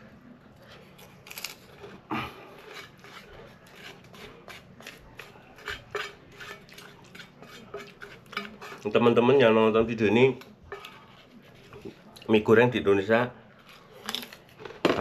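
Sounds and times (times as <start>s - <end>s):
crackers crunching: 0.6s - 5.0s, 13.5s - 15.0s.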